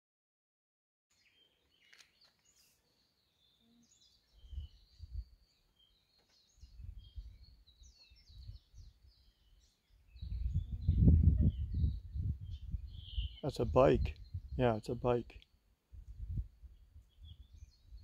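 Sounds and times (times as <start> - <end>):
small birds chirping: 1.1 - 18.0
low rumble on microphone: 10.2 - 14.6, 15.9 - 18.0.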